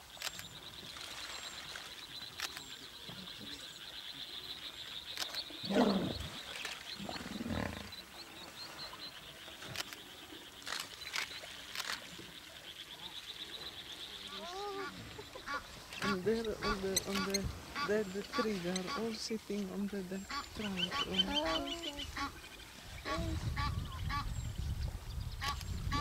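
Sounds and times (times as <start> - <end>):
deep animal calls: 5.6 - 8.1.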